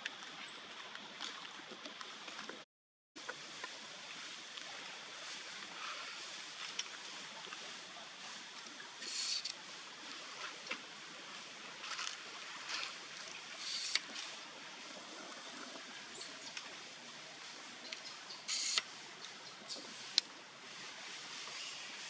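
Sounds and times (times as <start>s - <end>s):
quiet outdoor background: 3.2s - 22.0s
monkeys high-pitched hissy calls: 9.0s - 9.5s.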